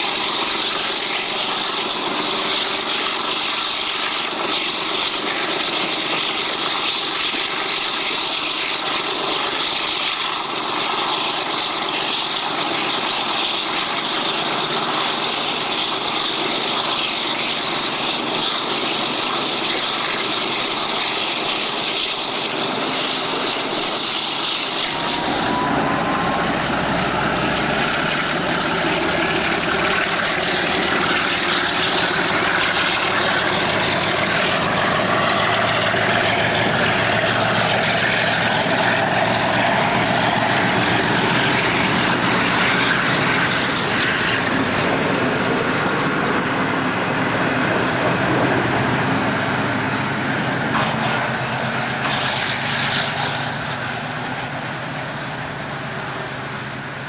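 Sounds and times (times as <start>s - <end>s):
diesel locomotive engine rumble: 0.0s - 57.0s
faint rising whine: 24.8s - 33.2s.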